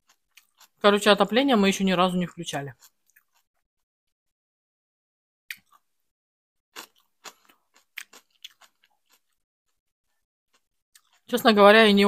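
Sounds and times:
chewing with wet mouth clicks: 0.0s - 0.8s, 6.8s - 9.4s, 10.5s - 11.3s
sharp clicks and crunches: 6.8s - 9.4s.

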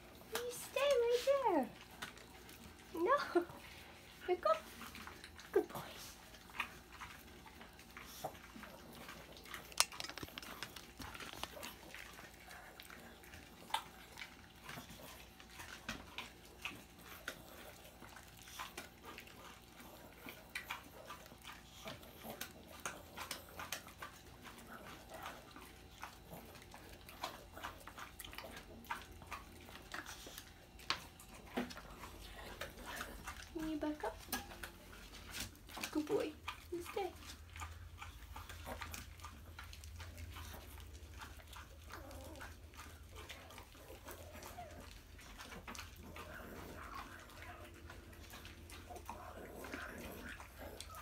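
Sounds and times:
dog chewing treat: 0.0s - 51.0s.

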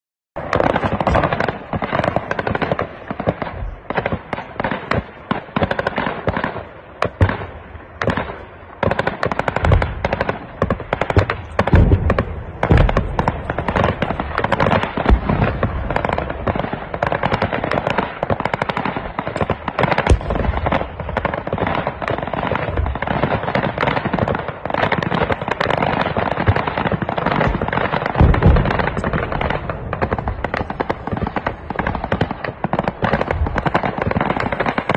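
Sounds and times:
heavy gunfire: 9.3s - 24.4s, 25.1s - 34.9s.

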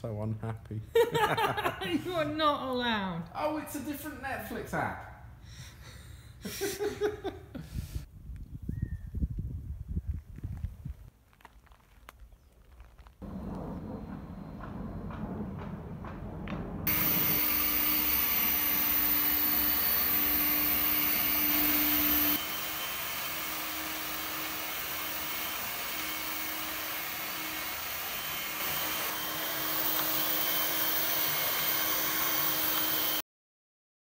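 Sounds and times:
low motor hum: 13.2s - 33.1s
suction fan high whine: 13.2s - 33.2s.

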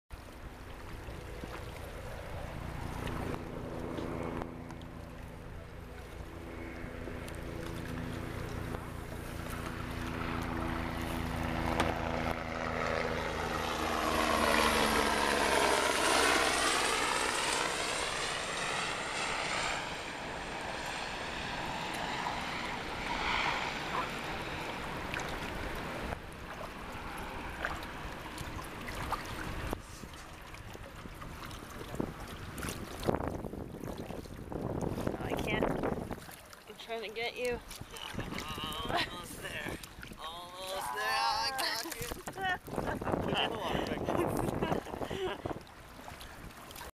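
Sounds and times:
jet aircraft passing overhead: 0.2s - 33.7s, 38.1s - 46.9s.

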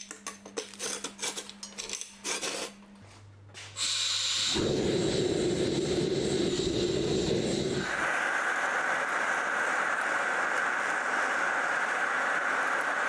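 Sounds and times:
gas hissing: 3.8s - 13.0s
forge burner roaring: 4.1s - 13.0s.

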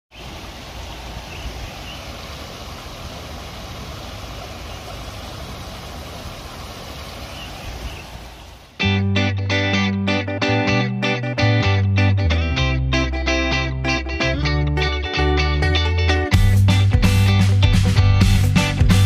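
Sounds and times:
small stream flowing: 0.1s - 8.9s.

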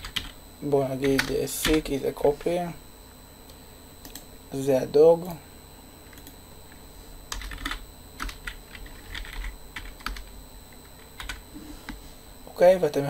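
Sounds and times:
computer keyboard typing: 0.0s - 0.4s, 1.0s - 1.8s, 7.3s - 10.3s, 10.9s - 11.4s.

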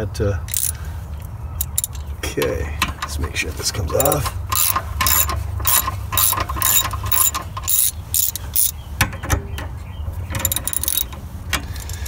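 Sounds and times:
ratchet wrench clicking: 0.5s - 0.8s, 1.6s - 2.1s, 3.9s - 8.8s, 10.4s - 12.0s.

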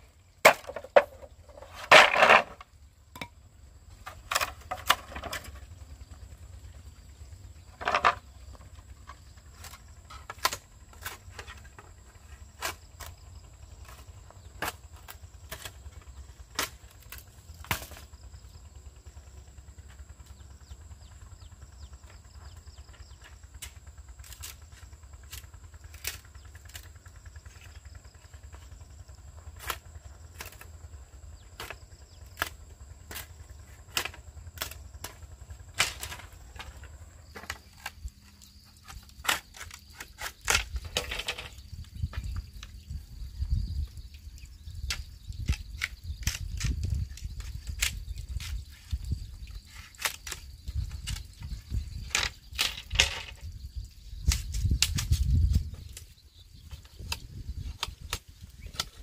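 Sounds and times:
low steady rumble: 0.0s - 59.0s
machete chopping bamboo: 0.4s - 3.4s, 9.6s - 11.7s, 13.8s - 15.9s, 16.5s - 18.1s, 23.6s - 27.7s, 29.6s - 30.8s, 31.6s - 38.1s, 38.8s - 41.6s, 44.8s - 49.0s, 49.8s - 51.2s, 54.2s - 56.1s, 56.7s - 59.0s.

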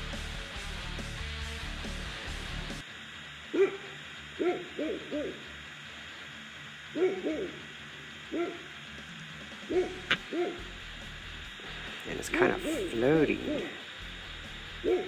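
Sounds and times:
faint steady hiss: 0.1s - 15.0s
animal hooting calls: 3.6s - 5.6s, 6.9s - 7.7s, 8.3s - 10.7s, 12.6s - 13.8s.

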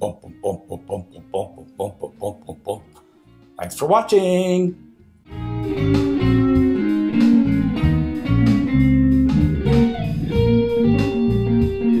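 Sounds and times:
guitar-led instrumental music: 5.0s - 12.0s.

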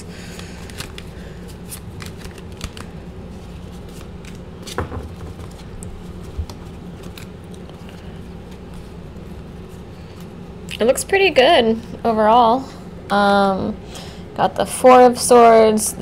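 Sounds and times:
cards shuffled by hand: 0.3s - 10.4s.

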